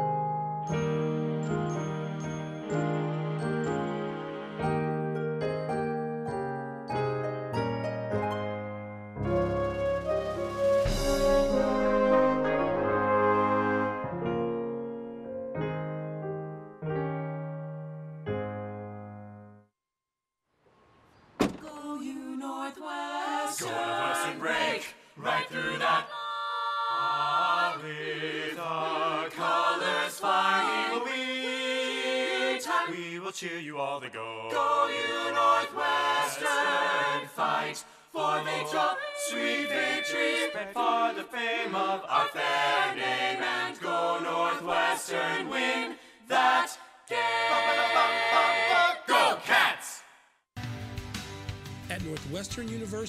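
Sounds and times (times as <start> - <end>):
group singing a cappella: 22.0 - 50.2.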